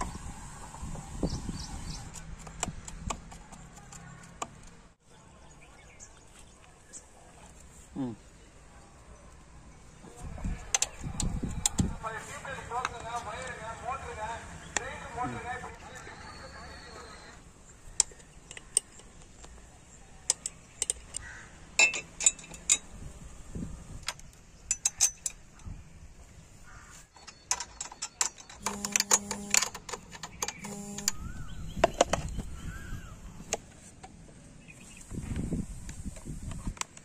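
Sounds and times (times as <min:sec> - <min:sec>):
metal parts clinking: 0:21.8 - 0:22.9, 0:24.6 - 0:25.6, 0:27.1 - 0:31.0
short buzzing tone: 0:28.6 - 0:29.8, 0:30.6 - 0:31.6.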